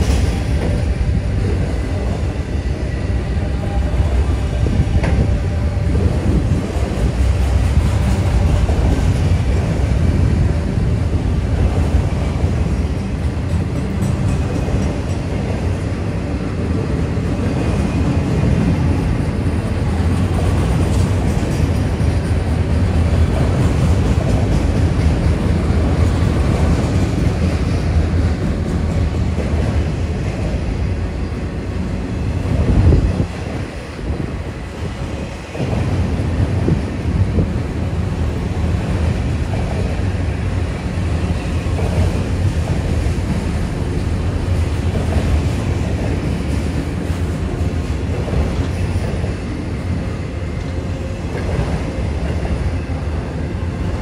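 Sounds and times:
steel wheels rumbling on rails: 0:00.0 - 0:54.0
clickety-clack of wheels: 0:11.6 - 0:15.7, 0:17.5 - 0:30.7, 0:38.6 - 0:40.2, 0:41.2 - 0:52.6.

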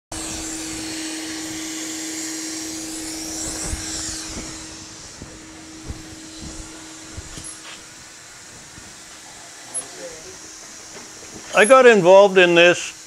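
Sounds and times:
low machine hum: 0:00.1 - 0:13.0
machine air rush: 0:00.1 - 0:13.0
soft knocks: 0:03.1 - 0:09.2.

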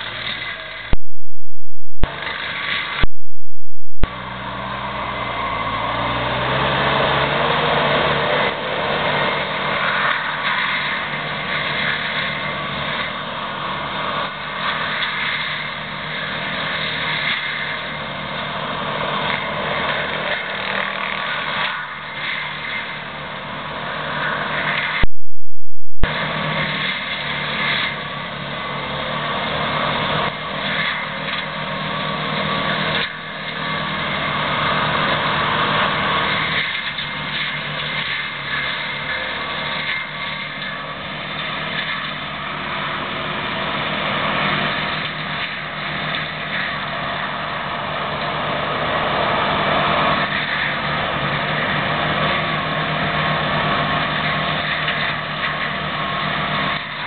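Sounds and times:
diesel engine under load: 0:04.1 - 0:25.0, 0:26.1 - 0:57.0.

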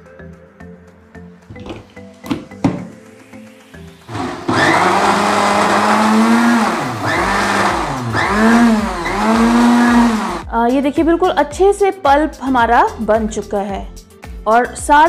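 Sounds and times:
mixer grinder motor grinding: 0:04.1 - 0:10.4.

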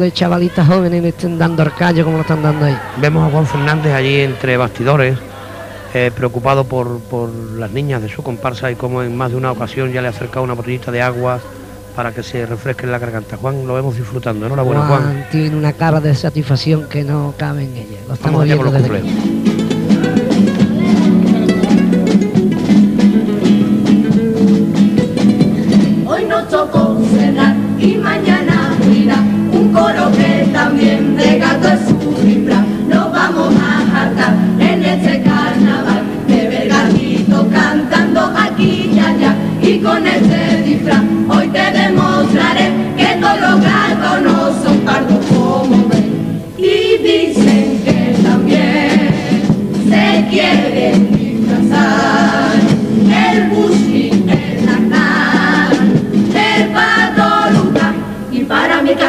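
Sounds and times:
guitar: 0:00.0 - 0:59.0
female choir singing in harmony: 0:26.0 - 0:59.0.

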